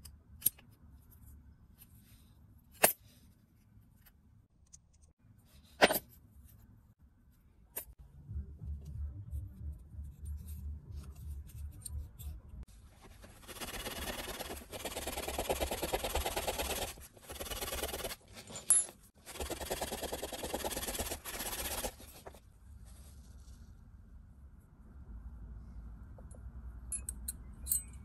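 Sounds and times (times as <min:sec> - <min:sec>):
handling of metal parts: 0:18.3 - 0:19.2.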